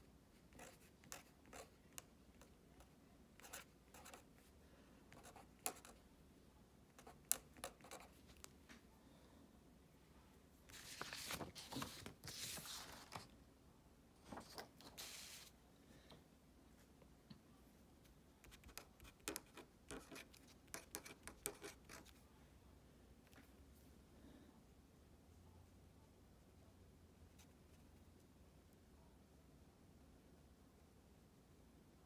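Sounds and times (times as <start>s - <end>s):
pen scratching on paper: 0.5s - 1.8s, 3.4s - 4.3s, 5.1s - 6.0s, 7.0s - 8.2s, 18.4s - 22.2s
paper rustling: 10.7s - 13.3s.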